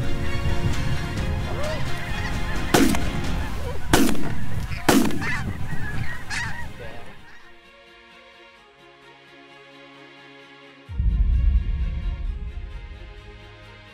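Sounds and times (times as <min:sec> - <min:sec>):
flock of geese calling: 0:00.0 - 0:07.7
shotgun shots: 0:02.7 - 0:03.1, 0:03.9 - 0:05.4.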